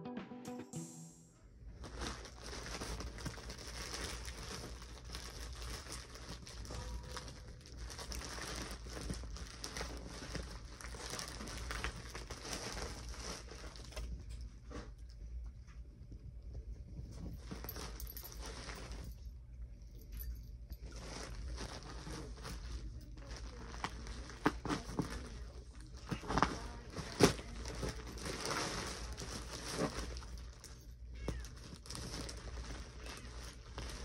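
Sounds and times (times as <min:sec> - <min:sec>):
plastic bag crinkling: 0:01.8 - 0:14.3, 0:20.2 - 0:34.0.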